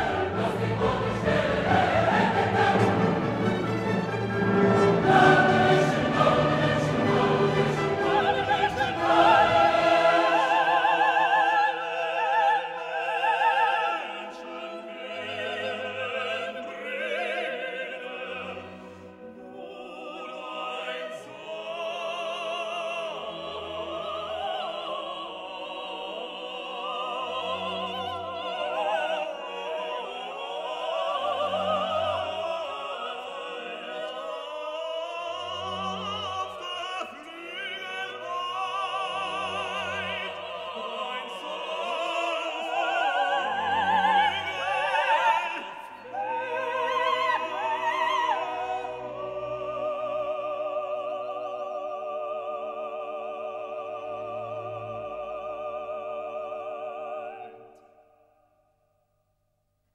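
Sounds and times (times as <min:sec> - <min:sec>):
orchestra playing: 0:00.0 - 0:11.6
operatic singing: 0:00.0 - 0:58.2.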